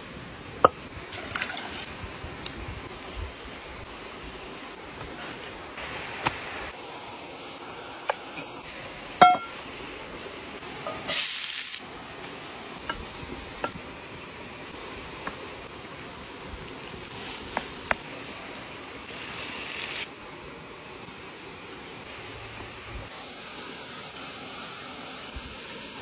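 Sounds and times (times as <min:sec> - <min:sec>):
small waterfall rushing: 0:00.0 - 0:26.0
meat sizzling in a frying pan: 0:08.3 - 0:22.9.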